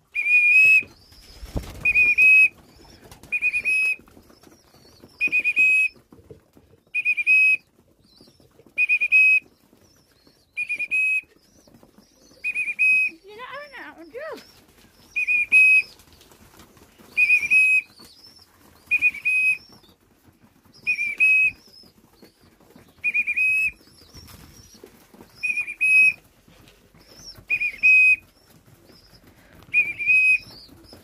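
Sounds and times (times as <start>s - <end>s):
whistle toots: 0.2s - 0.9s, 1.7s - 2.5s, 3.3s - 4.0s, 5.2s - 5.9s, 7.0s - 7.6s, 8.8s - 9.4s, 10.6s - 11.2s, 12.5s - 13.2s, 15.2s - 15.9s, 17.2s - 17.9s, 18.9s - 19.6s, 20.8s - 21.6s, 23.0s - 23.8s, 25.4s - 26.2s, 27.5s - 28.2s, 29.7s - 30.6s.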